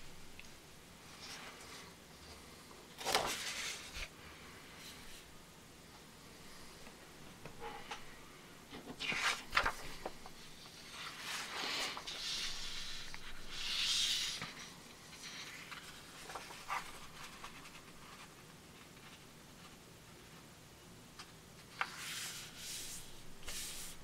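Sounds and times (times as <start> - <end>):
paper rustling and sliding: 1.1 - 4.1, 7.5 - 19.2, 21.7 - 24.0.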